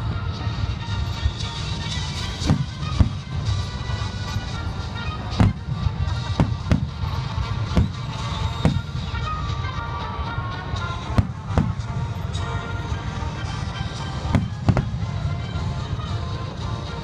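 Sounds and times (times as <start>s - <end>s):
music playing: 0.0s - 17.0s
fireworks cracking: 1.3s - 9.6s, 10.9s - 12.6s, 14.2s - 15.8s
fireworks booming: 1.5s - 9.3s, 10.9s - 12.5s, 14.2s - 15.6s.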